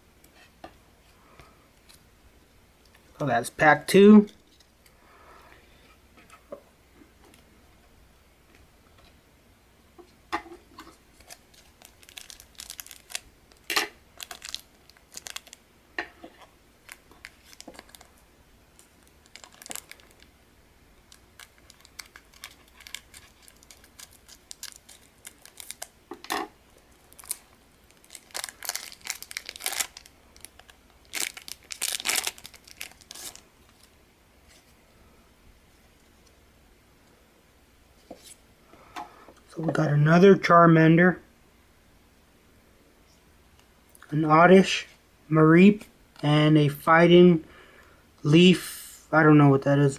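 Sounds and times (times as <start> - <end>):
cards rustling: 11.1 - 15.6, 21.1 - 25.9, 27.1 - 33.9
foil wrapper crinkling: 11.1 - 15.6, 16.8 - 18.2, 18.8 - 20.3, 21.0 - 26.0, 26.9 - 33.9.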